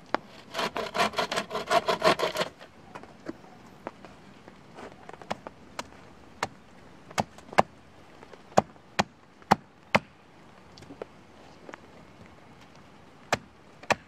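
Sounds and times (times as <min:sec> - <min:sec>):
hatchet chopping wood: 0:00.5 - 0:02.6.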